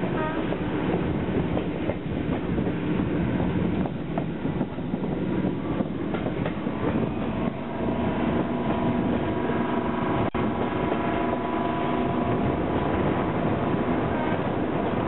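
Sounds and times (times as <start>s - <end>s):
diesel locomotive engine drone: 0.0s - 15.0s
train running rumble: 0.0s - 15.0s
wind on microphone: 0.0s - 15.0s.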